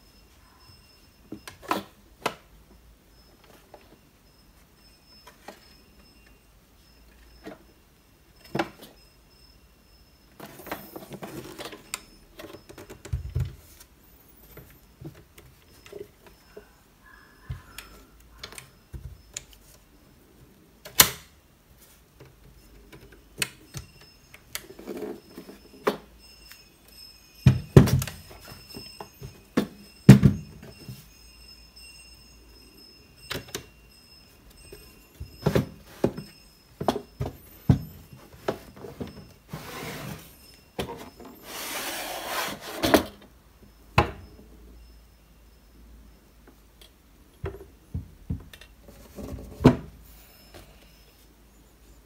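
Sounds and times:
drawer sliding out: 38.5s - 43.2s.

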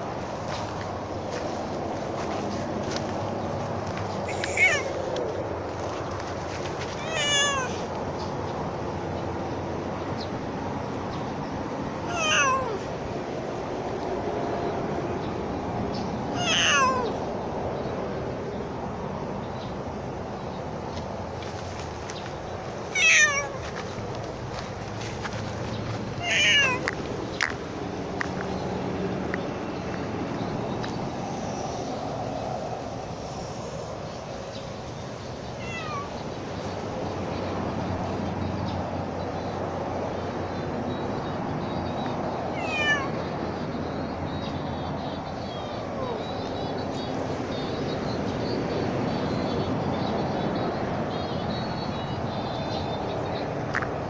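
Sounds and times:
steady background noise: 0.0s - 54.0s
cat meowing: 4.2s - 5.0s, 7.0s - 7.9s, 12.1s - 12.8s, 16.3s - 17.2s, 22.9s - 23.6s, 26.2s - 26.9s, 35.6s - 36.2s, 42.5s - 43.2s.

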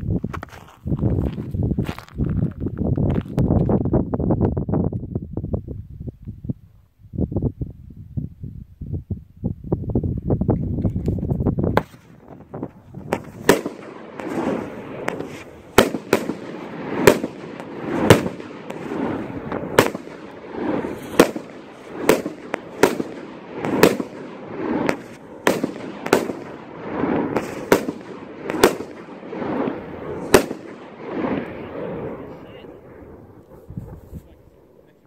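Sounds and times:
firework shells rushing up: 11.7s - 31.6s
firework shells cracking: 11.8s - 31.6s.

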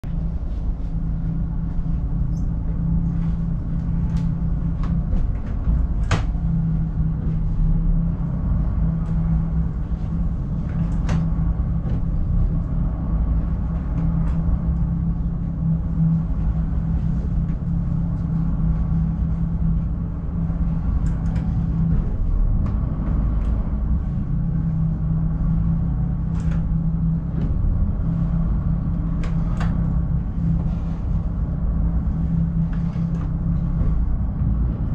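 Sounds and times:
boat diesel engines droning: 0.0s - 34.9s.

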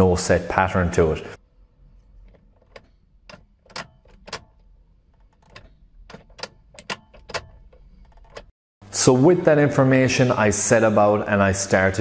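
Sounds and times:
keys clicking and jangling: 2.3s - 8.5s.

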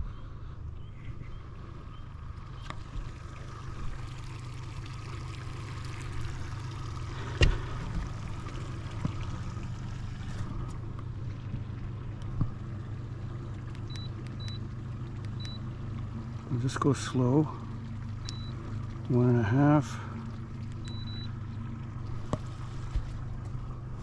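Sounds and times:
outboard motor idling: 0.0s - 24.0s
water washing along hull: 1.5s - 24.0s.

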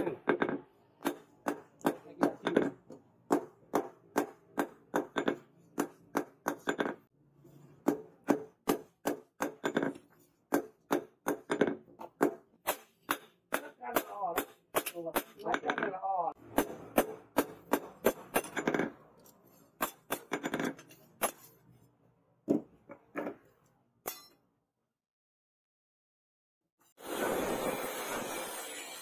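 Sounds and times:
hammer striking hot steel on anvil: 24.0s - 24.4s.

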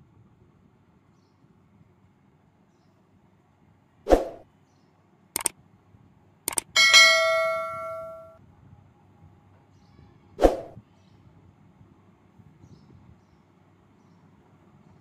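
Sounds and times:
quick double clicks: 5.4s - 5.6s, 6.5s - 6.8s
bright bell ding: 6.8s - 8.4s.

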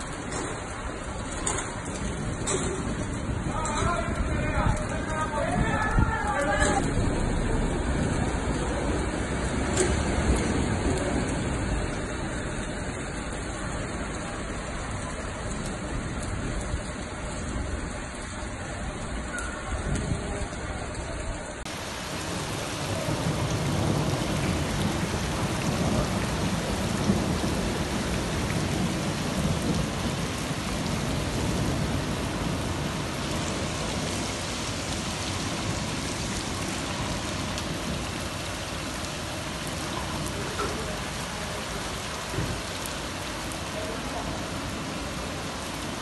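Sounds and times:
heavy rain and running water: 0.0s - 46.0s
low rumble: 6.0s - 12.7s.

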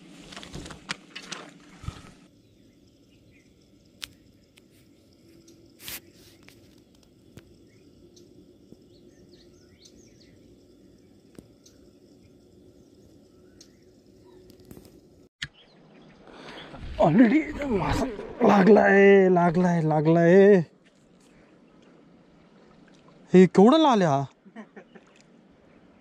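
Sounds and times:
faint bird chirps: 2.4s - 6.6s, 7.4s - 16.9s.

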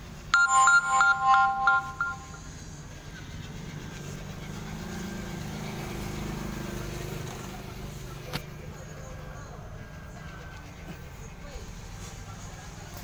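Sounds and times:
electronic jingle of beeping tones: 0.4s - 2.5s.

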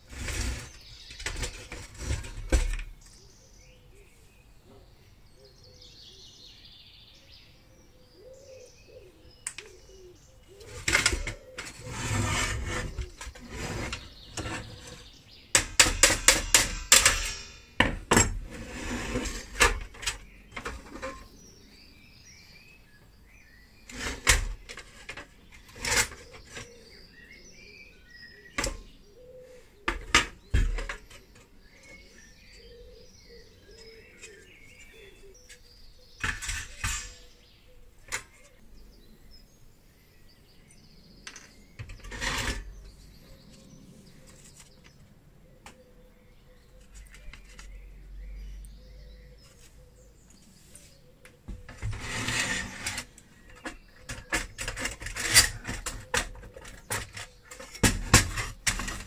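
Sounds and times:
faint birds chirping: 0.0s - 59.0s
metal toy parts clanking: 15.6s - 18.5s, 36.2s - 37.3s, 54.0s - 59.0s.

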